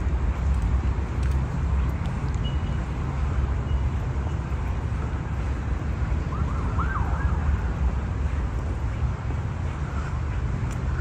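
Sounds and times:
steady low rumble: 0.0 - 11.0
faint siren wailing: 6.0 - 7.9.

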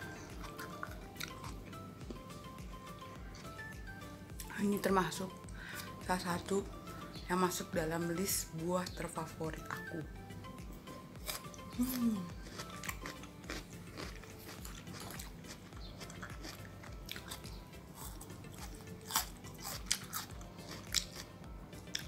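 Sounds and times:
crunchy biting and chewing: 0.0 - 2.4, 11.2 - 22.0.

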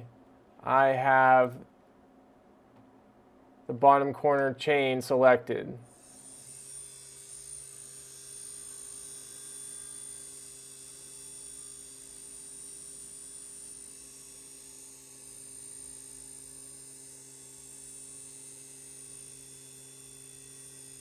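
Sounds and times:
milling machine spindle hum: 5.9 - 21.0.

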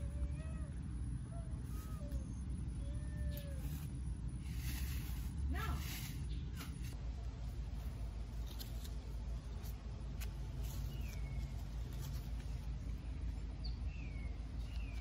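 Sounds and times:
low steady rumble: 0.0 - 15.0
bird chirping: 10.6 - 15.0.

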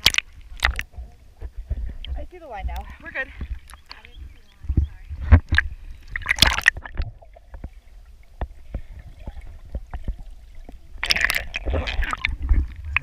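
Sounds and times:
faint clicks underwater: 0.0 - 7.8
muffled underwater sound: 0.0 - 13.0
water splashing against camera: 0.0 - 13.0.

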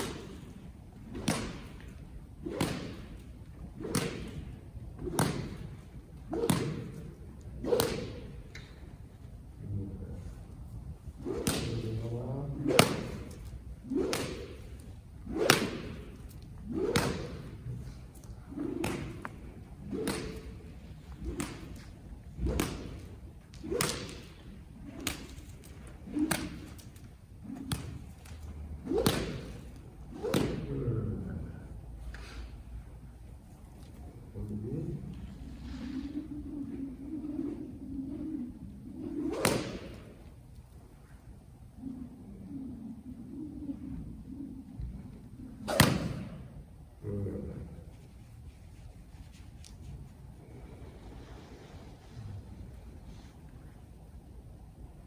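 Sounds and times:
whip slapping: 0.0 - 9.1, 10.6 - 31.0, 35.6 - 42.0, 43.5 - 46.6.

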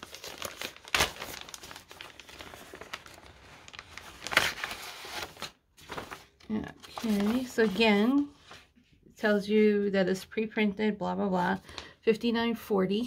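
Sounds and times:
plastic bags crinkling: 0.0 - 8.2.

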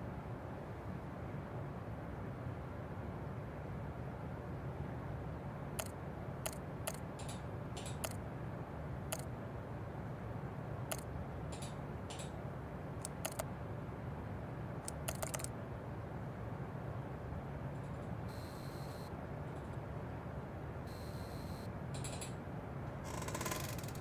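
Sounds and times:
low room hum: 0.0 - 24.0
computer mouse clicking: 5.8 - 8.2, 10.9 - 12.3, 13.0 - 13.5, 14.8 - 15.5.

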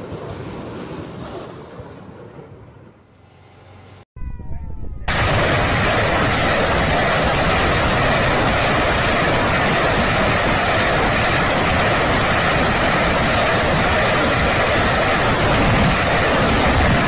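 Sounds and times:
rocket motors roaring: 4.2 - 17.0.

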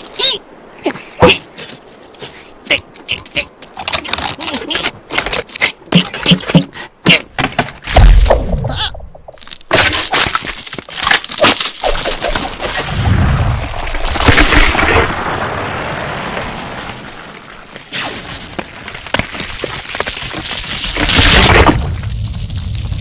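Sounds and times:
ice crackling and breaking: 9.4 - 23.0.

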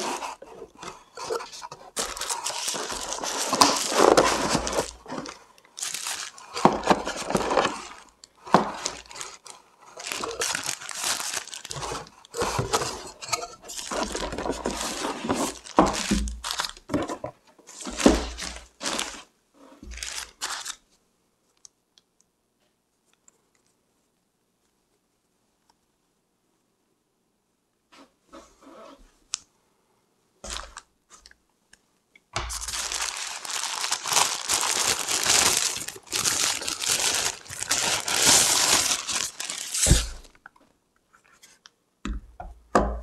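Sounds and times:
plastic bag crinkling: 0.0 - 19.3, 19.9 - 20.8, 30.4 - 31.3, 32.5 - 40.4.

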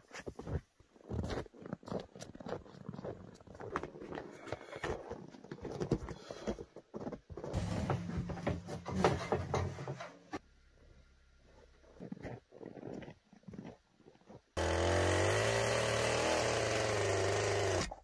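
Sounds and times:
footsteps crunching through snow: 0.0 - 5.9.

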